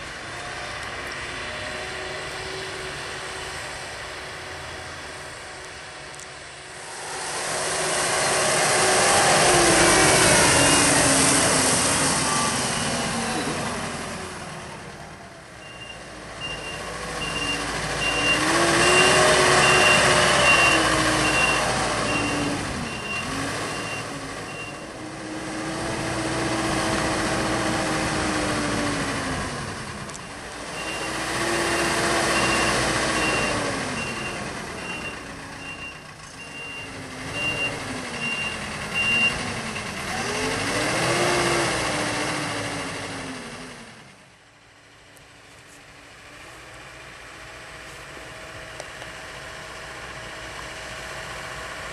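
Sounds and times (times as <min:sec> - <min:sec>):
diesel engine revving: 0:00.0 - 0:45.0, 0:46.0 - 0:51.9
reversing alarm beeping: 0:10.2 - 0:11.2, 0:15.6 - 0:24.8, 0:30.3 - 0:39.4.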